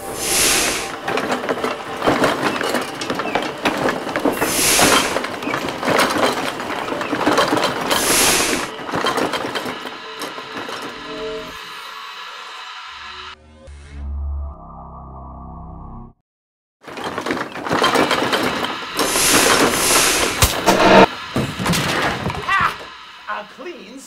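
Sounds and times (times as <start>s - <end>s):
clattering and banging: 0.8s - 11.0s, 16.8s - 23.0s.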